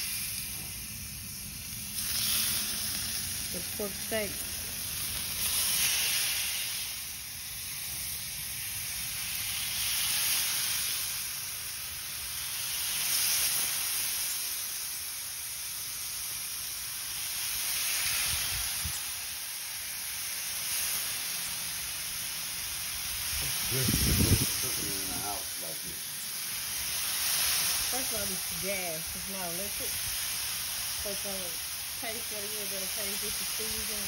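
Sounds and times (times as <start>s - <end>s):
meat sizzling on a griddle: 0.0s - 34.0s.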